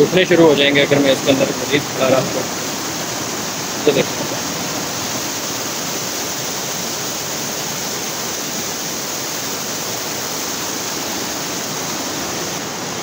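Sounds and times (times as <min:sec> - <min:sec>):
stream rushing over rocks: 0:00.0 - 0:13.0.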